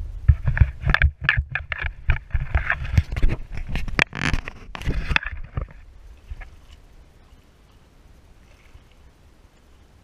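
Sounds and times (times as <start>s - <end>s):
camera handling knocks and scrapes: 0.3s - 5.8s.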